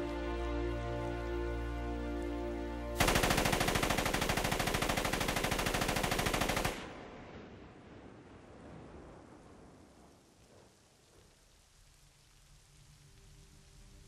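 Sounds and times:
soft orchestral music: 0:00.0 - 0:06.7, 0:12.7 - 0:14.0
rain hiss: 0:00.0 - 0:14.0
submachine gun firing burst: 0:03.0 - 0:06.9.

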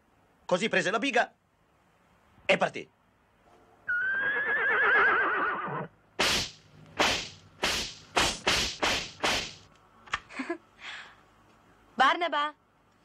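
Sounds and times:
horse whinnying: 0:03.8 - 0:05.9
sharp noisy cracks: 0:06.2 - 0:09.8.

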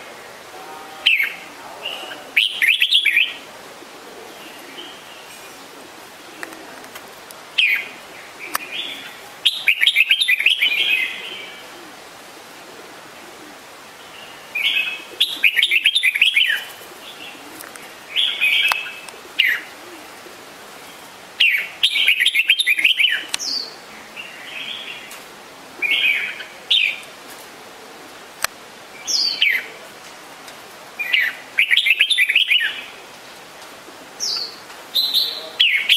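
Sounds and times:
bird calling: 0:00.0 - 0:07.0, 0:07.6 - 0:12.0, 0:12.6 - 0:25.2, 0:31.0 - 0:33.0, 0:34.2 - 0:35.9.

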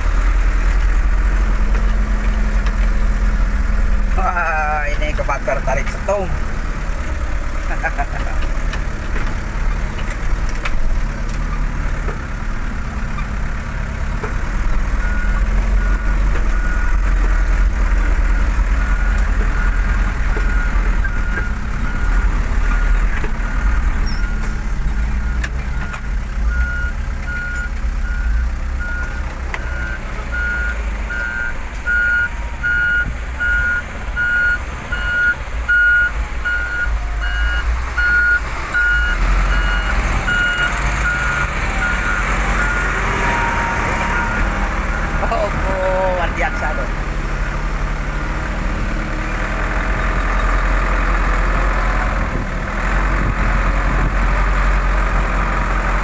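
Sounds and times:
diesel truck engine rumbling: 0:00.0 - 0:56.0
reversing alarm beeping: 0:18.2 - 0:22.9, 0:25.3 - 0:47.0.

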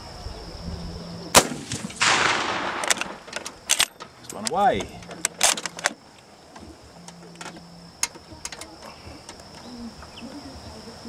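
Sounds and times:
sharp clicks: 0:01.4 - 0:09.7
dove cooing: 0:06.4 - 0:11.0.

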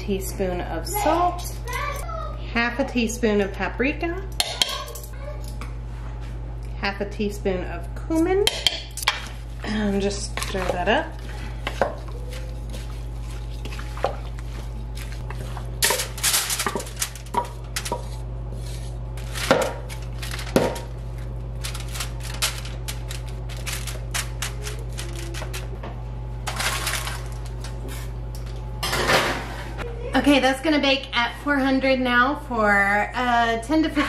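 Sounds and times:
steady low hum: 0:00.0 - 0:34.0
wooden spoon clinking and scraping: 0:09.0 - 0:20.5.

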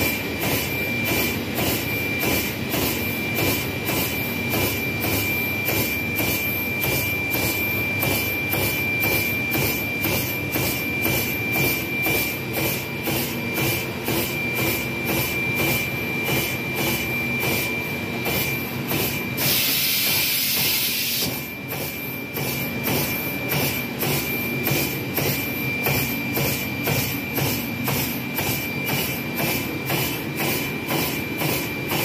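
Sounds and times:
machine high whine: 0:00.0 - 0:32.0
hiss: 0:19.4 - 0:21.3.

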